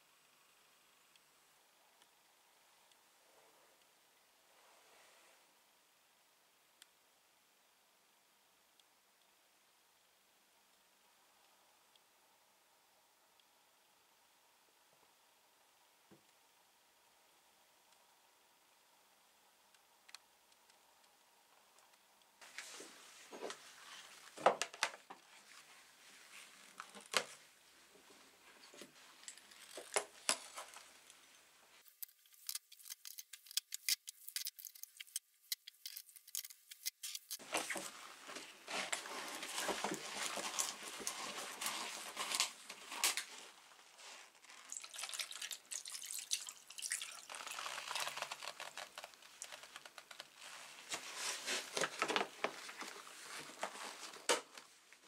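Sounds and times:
liquid pouring: 44.7 - 48.2.

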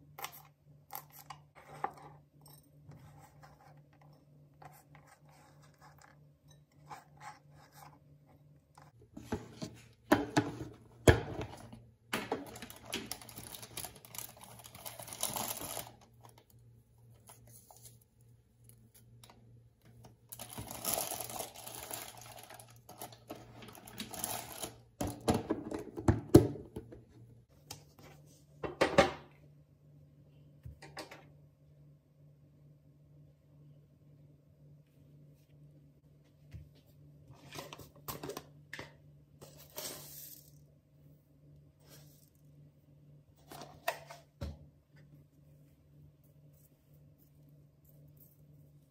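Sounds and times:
foil and plastic crinkling: 12.4 - 16.0, 20.4 - 24.8.

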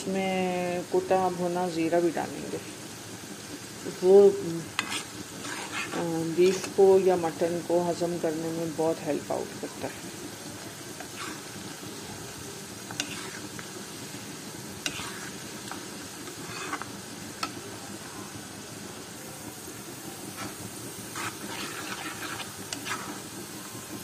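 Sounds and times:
onions sizzling in oil: 0.0 - 24.0.

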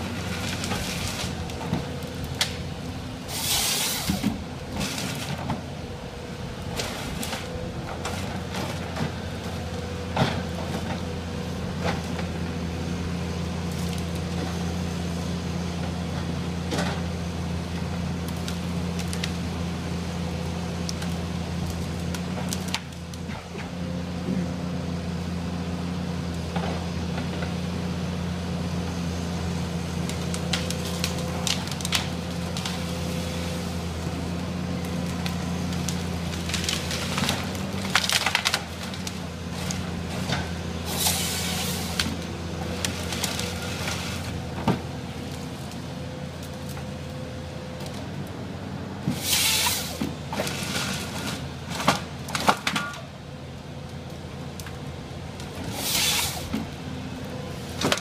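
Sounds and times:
diesel engine running: 0.0 - 58.0
wood cracking: 30.1 - 33.0, 34.7 - 45.8.

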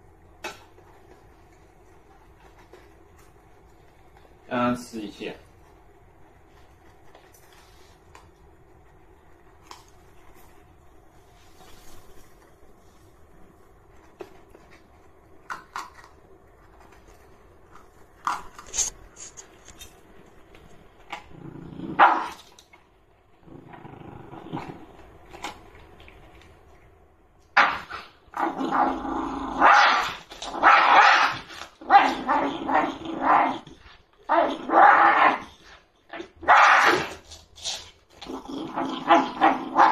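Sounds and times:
dog crunching kibble: 13.8 - 21.4, 24.5 - 27.0
dog growling: 21.1 - 22.5, 23.4 - 25.5, 27.6 - 37.2, 38.1 - 39.9
dog barking: 22.0 - 22.4, 29.6 - 32.3.

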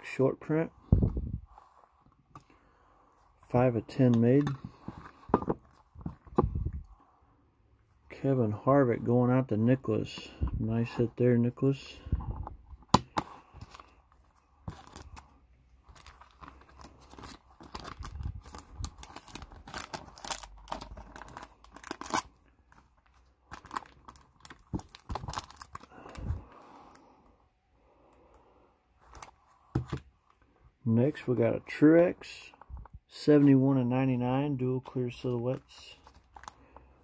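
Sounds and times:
plastic crinkling and rustling: 14.7 - 27.0.

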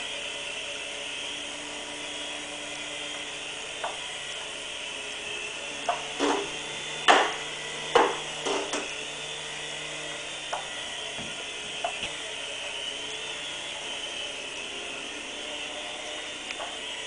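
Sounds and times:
toy helicopter motor whirring: 0.0 - 17.0
sharp knocks and clicks: 3.8 - 4.0, 5.8 - 8.9.

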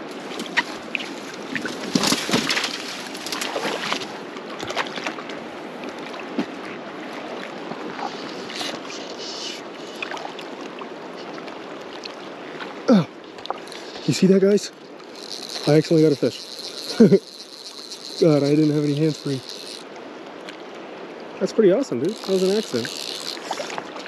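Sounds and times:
river water rushing: 0.0 - 24.0.

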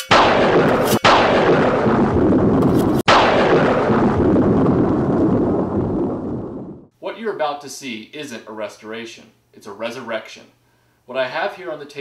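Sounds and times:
booming blasts with rumble: 0.1 - 6.9.

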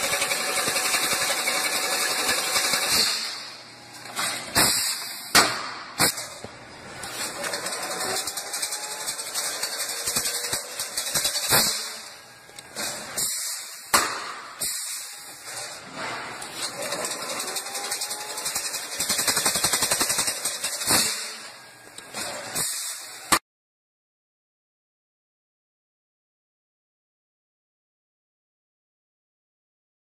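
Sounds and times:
fence weaving machine clatter: 0.0 - 3.3, 7.0 - 12.0, 16.5 - 21.0
machine sharp clack: 0.0 - 3.7, 4.3 - 6.4, 7.3 - 12.2, 16.5 - 21.6.

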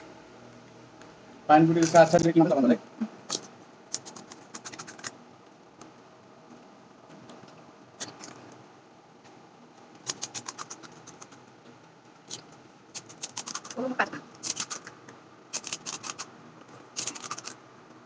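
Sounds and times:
crisp shells cracking and crunching: 12.3 - 13.8, 14.4 - 14.9, 16.9 - 17.6.

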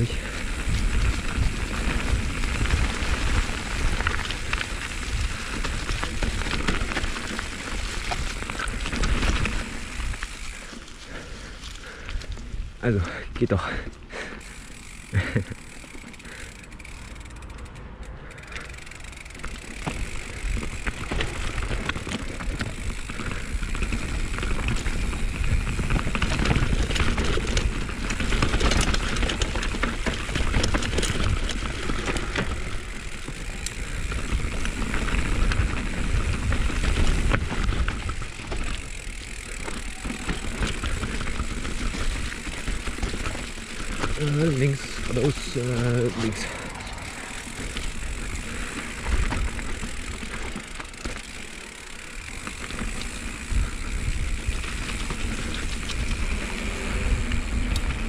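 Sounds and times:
bike rattling over bumps: 0.0 - 58.0
bike tyres rolling downhill: 0.0 - 58.0.

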